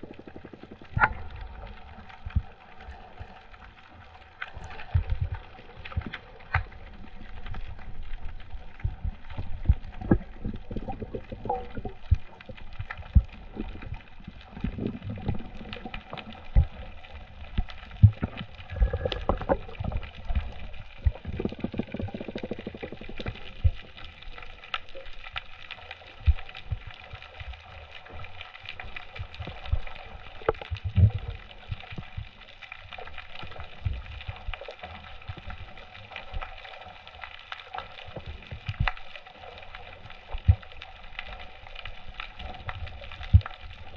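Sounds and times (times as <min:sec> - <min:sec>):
faint steady hum: 0:00.0 - 0:24.9.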